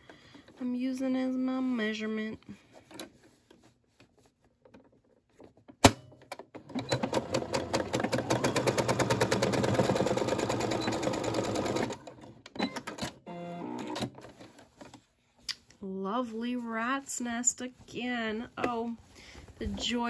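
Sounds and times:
sewing machine stitching: 6.6s - 14.6s.

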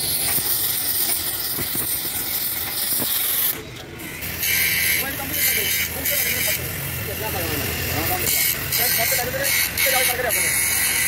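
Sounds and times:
welding torch flame hissing: 0.0s - 11.0s.

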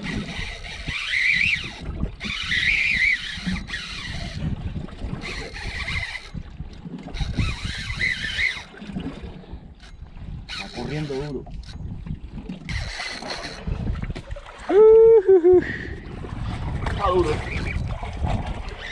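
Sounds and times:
fishing reel drag whining: 0.0s - 8.9s, 9.6s - 12.0s, 12.7s - 13.9s, 18.7s - 18.9s
wind buffeting microphone: 0.0s - 18.9s.

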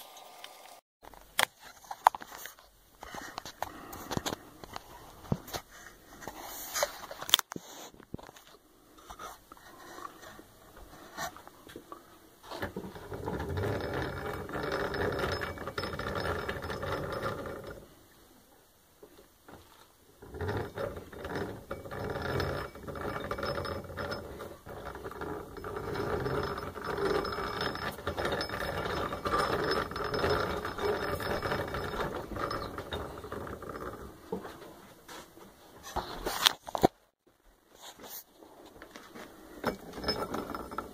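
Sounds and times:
hand-cranked grinder turning: 12.5s - 18.0s, 19.5s - 34.8s, 39.6s - 40.9s.

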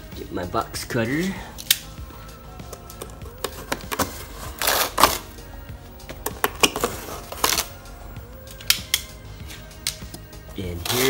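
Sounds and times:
box cutter slitting cardboard: 3.7s - 5.3s.

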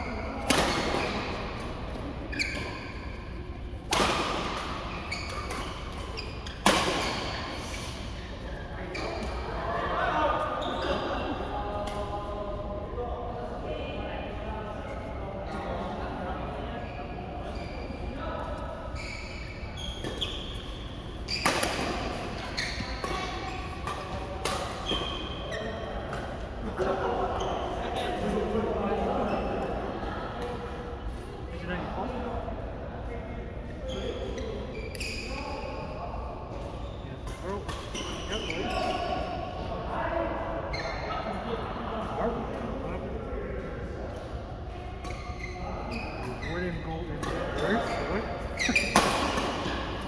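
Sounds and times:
racket hitting shuttlecock: 0.4s - 1.4s, 6.6s - 7.4s, 21.4s - 25.2s, 48.6s - 50.0s
shoes squeaking on court: 0.8s - 3.4s, 4.2s - 9.5s, 18.9s - 26.5s, 27.4s - 27.8s, 33.8s - 35.9s, 36.6s - 39.3s, 40.7s - 41.2s, 45.0s - 50.0s.

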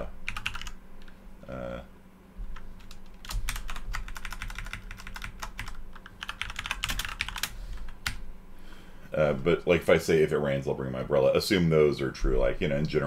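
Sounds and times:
typing on computer keyboard: 0.3s - 0.8s, 2.6s - 8.2s
short hum-like vocal sound: 1.1s - 2.8s, 10.7s - 13.0s.

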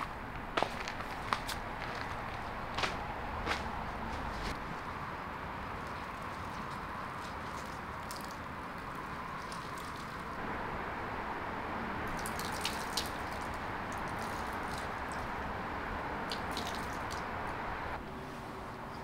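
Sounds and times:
water splashing over leafy greens: 5.6s - 10.4s, 12.0s - 15.4s, 16.2s - 17.4s
sharp drips and clicks: 5.7s - 10.4s, 12.0s - 15.6s, 16.2s - 17.6s.

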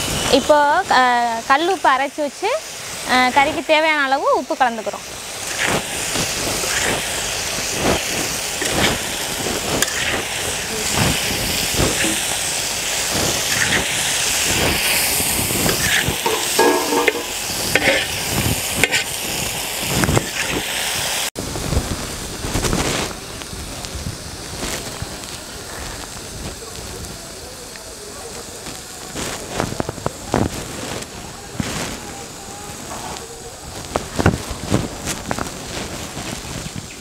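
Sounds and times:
food sizzling in hot oil: 0.0s - 37.0s
metal spatula scraping a pan: 5.4s - 7.2s, 8.0s - 14.9s, 15.6s - 19.1s.

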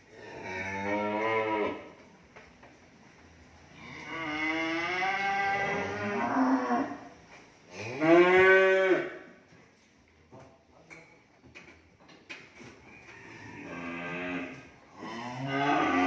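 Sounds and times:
cattle mooing: 0.2s - 1.9s, 3.8s - 7.0s, 13.0s - 16.0s.

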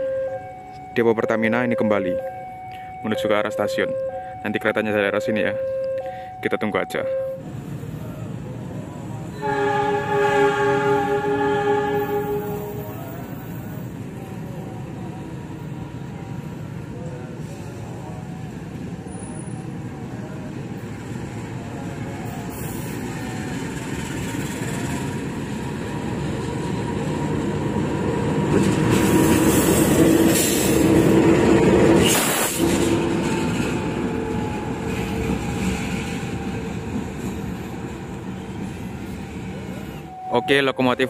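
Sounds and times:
locomotive passing: 7.4s - 41.0s.

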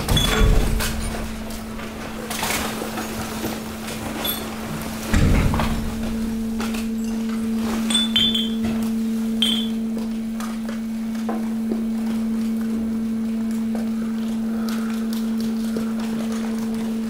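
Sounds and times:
hydraulic press humming: 0.0s - 14.4s
bottles cracking and clinking: 7.8s - 8.7s, 9.4s - 9.8s.

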